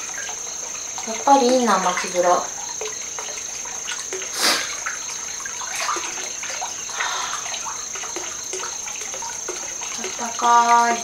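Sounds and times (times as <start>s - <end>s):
bathwater lapping and splashing: 0.0s - 11.0s.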